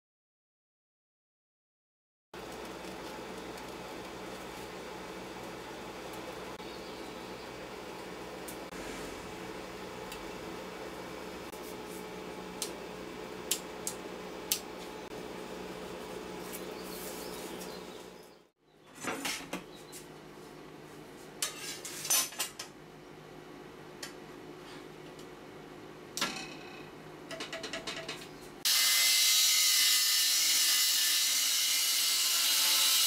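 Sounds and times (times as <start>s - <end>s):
metal clattering on steel table: 26.2s - 28.3s.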